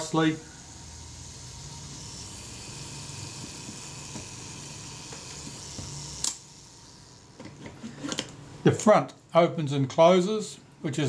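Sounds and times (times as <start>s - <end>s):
camera self-timer whirring: 0.0s - 7.9s.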